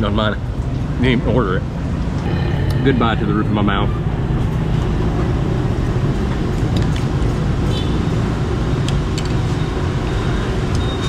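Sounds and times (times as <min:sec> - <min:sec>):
city street traffic rumble: 0:00.0 - 0:11.0.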